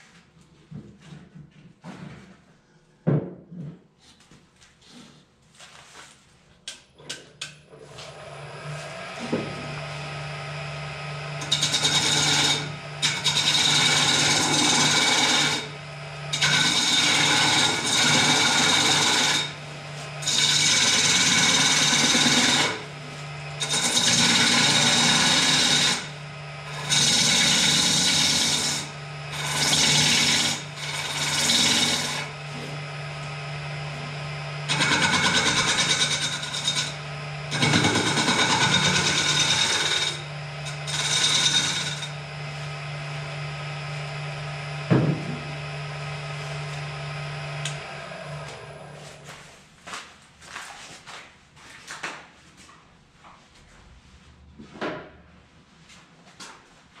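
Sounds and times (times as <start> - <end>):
lathe motor hum: 7.9 - 49.2
turning tool scraping wood: 11.4 - 32.9, 33.9 - 42.9.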